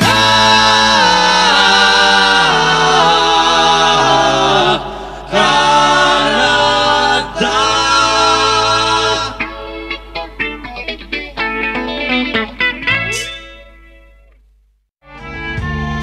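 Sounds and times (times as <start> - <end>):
male choir singing in harmony: 0.0 - 9.6.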